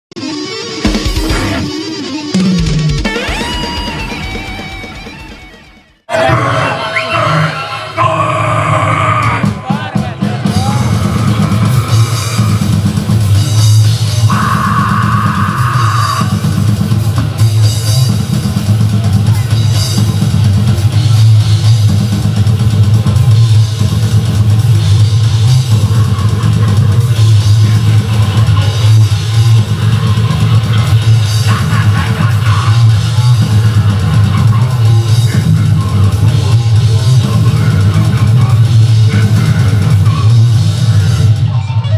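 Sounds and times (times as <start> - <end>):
distorted electric guitars: 0.1 - 41.9
death metal band playing: 0.2 - 41.9
pounding drum kit: 0.7 - 41.6.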